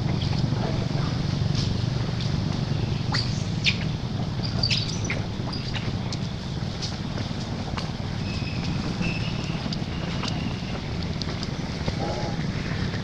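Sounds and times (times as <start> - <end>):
wind rumbling on microphone: 0.0 - 13.0
animal chirps and squeaks: 3.0 - 6.1.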